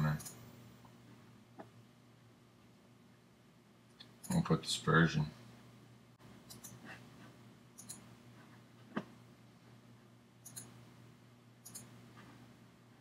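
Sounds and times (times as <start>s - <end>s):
faint low hum: 0.0s - 13.0s
mouse buttons clicking: 7.8s - 8.0s, 10.4s - 10.8s, 11.6s - 12.0s.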